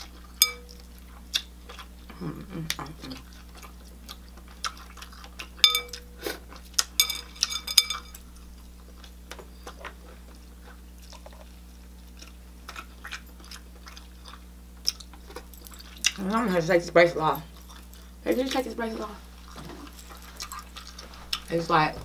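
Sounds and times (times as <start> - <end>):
chewing and smacking: 0.0 - 16.7, 17.3 - 22.0
sharp ringing clinks: 0.4 - 0.8, 5.6 - 6.1, 7.0 - 8.3.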